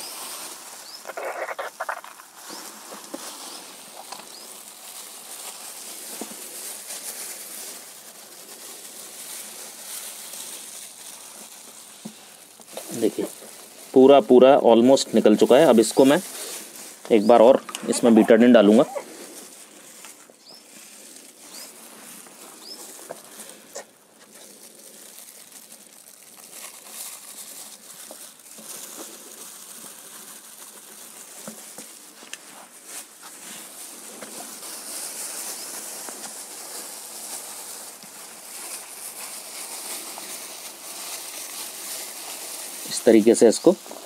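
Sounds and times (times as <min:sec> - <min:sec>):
plastic gloves rustling: 0:00.0 - 0:44.0.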